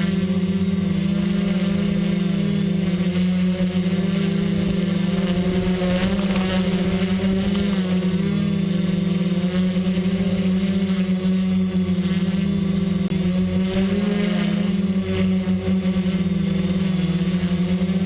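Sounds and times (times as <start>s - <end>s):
drone propellers humming: 0.0s - 18.0s.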